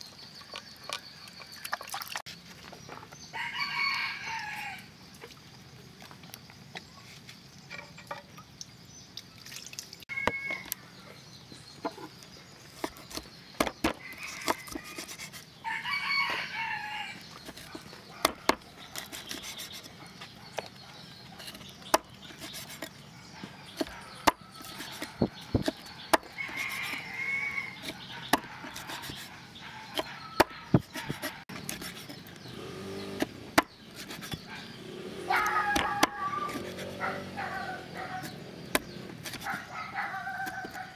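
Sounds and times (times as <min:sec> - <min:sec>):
rooster crowing: 0:03.4 - 0:04.9, 0:10.1 - 0:10.7, 0:15.6 - 0:17.2, 0:26.3 - 0:27.8, 0:35.3 - 0:38.3
cleaver chopping on wooden board: 0:12.8 - 0:15.2, 0:17.4 - 0:19.8, 0:23.8 - 0:26.9, 0:27.8 - 0:29.3, 0:29.9 - 0:32.1, 0:33.0 - 0:34.5, 0:35.4 - 0:37.0, 0:38.2 - 0:39.6.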